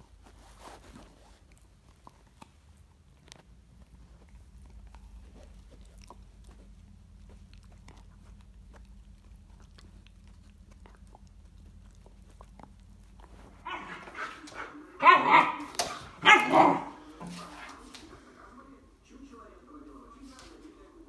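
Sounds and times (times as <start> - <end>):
faint low hum: 0.0 - 21.0
dog barking and yelping: 13.6 - 17.1.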